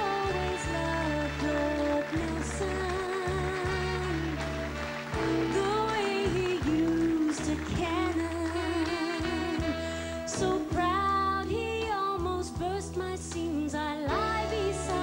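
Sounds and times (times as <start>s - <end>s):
woman singing into microphone: 0.0s - 4.5s, 5.2s - 15.0s
backing music with bass line: 0.0s - 15.0s.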